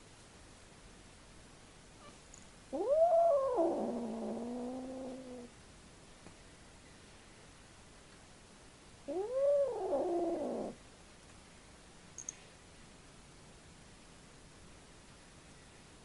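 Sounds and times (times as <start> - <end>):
cat yowling: 2.8 - 5.5, 9.1 - 10.8.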